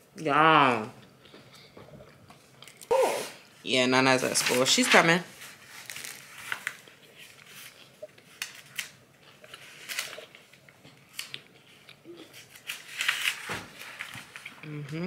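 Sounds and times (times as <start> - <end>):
person chewing crunchy food: 5.8 - 12.7.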